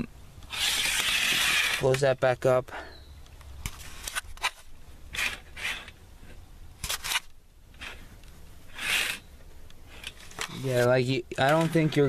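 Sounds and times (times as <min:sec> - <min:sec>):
grommets scraping along rod: 0:00.4 - 0:02.2, 0:03.6 - 0:08.1, 0:08.7 - 0:09.3, 0:09.9 - 0:12.0.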